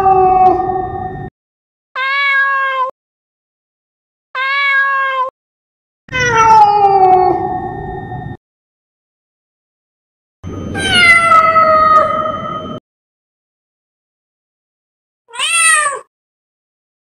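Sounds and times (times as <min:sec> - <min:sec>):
cat meowing: 0:02.0 - 0:02.9, 0:04.4 - 0:05.3, 0:06.1 - 0:07.6, 0:10.7 - 0:12.5, 0:15.3 - 0:16.1.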